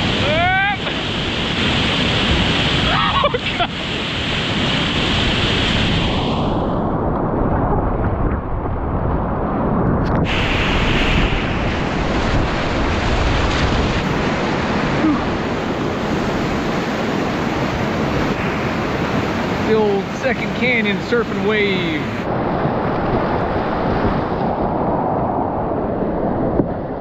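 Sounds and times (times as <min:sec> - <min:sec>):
rushing whitewater: 0:00.0 - 0:06.2, 0:10.3 - 0:22.3
water splashing around boat: 0:10.2 - 0:21.3.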